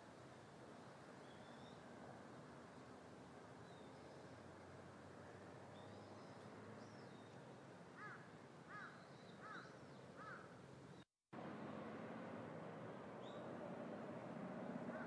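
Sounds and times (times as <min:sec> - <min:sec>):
small birds chirping: 0:01.2 - 0:01.8, 0:03.6 - 0:04.4, 0:05.7 - 0:11.1, 0:13.2 - 0:13.5
crow cawing: 0:08.0 - 0:10.5.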